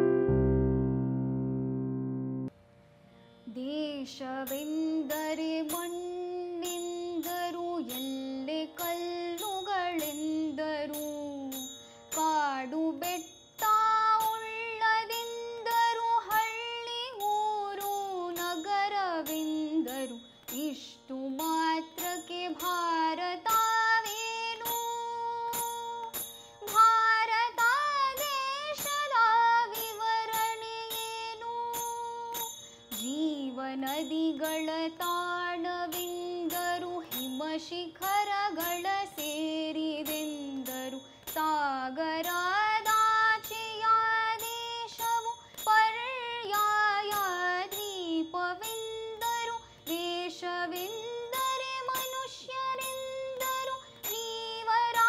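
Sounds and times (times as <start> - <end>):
woman singing: 3.5 - 55.0
light percussion ticks: 33.8 - 55.0.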